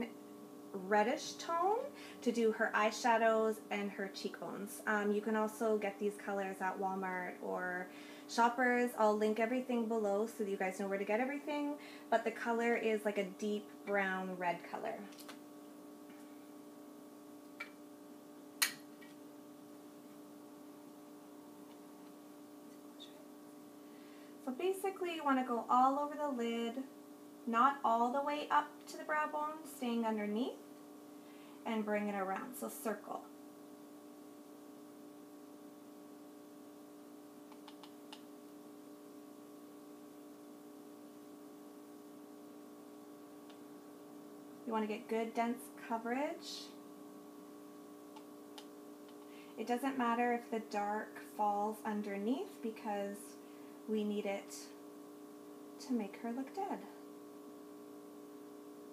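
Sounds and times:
faint steady hum: 0.0 - 58.9
faint small clicks: 37.5 - 38.3, 48.1 - 49.3.

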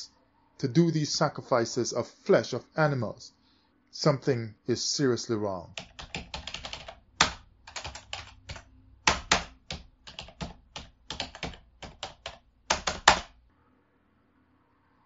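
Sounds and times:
rapid sharp clicks: 5.8 - 13.4.

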